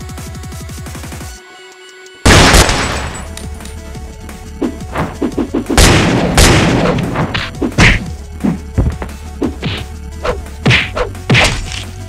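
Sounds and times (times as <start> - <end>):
background music: 0.0 - 12.0
cartoon whacks and thuds: 4.9 - 9.9, 10.6 - 11.9.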